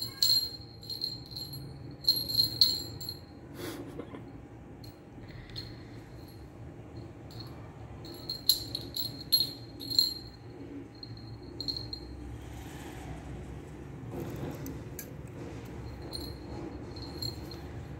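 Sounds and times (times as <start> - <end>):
small bell jingling: 0.0 - 3.4, 4.8 - 12.3, 15.8 - 17.9.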